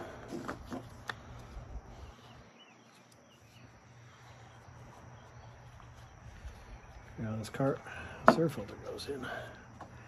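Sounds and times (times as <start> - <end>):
bird chirps: 2.0 - 7.2.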